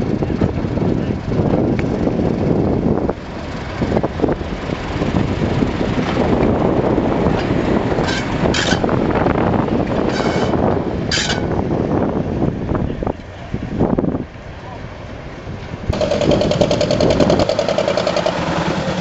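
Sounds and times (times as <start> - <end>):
diesel locomotive running past: 0.0 - 19.0
high metallic wheel squeals: 10.0 - 11.6.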